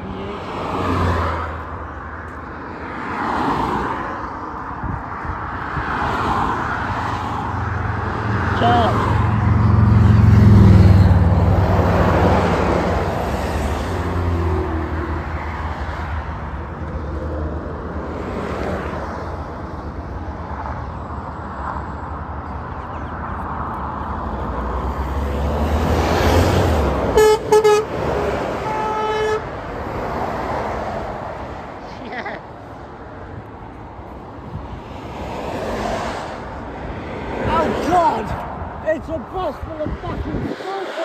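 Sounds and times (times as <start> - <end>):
steady traffic noise: 0.0 - 41.0
vehicle engine rumble passing: 7.6 - 15.2
lorry horn blasts: 27.2 - 27.9, 28.6 - 29.4.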